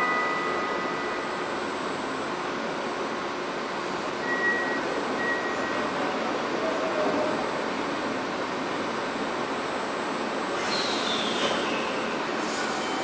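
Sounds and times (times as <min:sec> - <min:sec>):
subway train standing noise: 0:00.0 - 0:13.0
short high beeps: 0:04.2 - 0:05.8.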